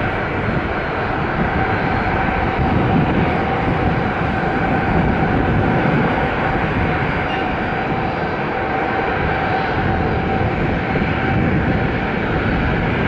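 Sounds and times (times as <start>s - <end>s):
jet engines rumbling and whining: 0.0s - 13.0s.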